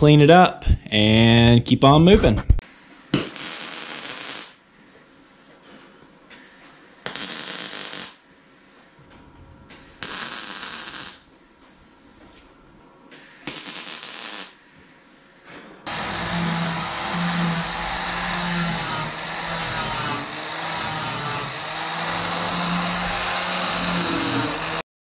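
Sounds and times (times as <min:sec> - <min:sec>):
welder crackling sizzle: 0:02.7 - 0:05.6, 0:06.4 - 0:09.1, 0:09.8 - 0:12.3, 0:13.2 - 0:24.8
angle grinder running: 0:15.9 - 0:24.8.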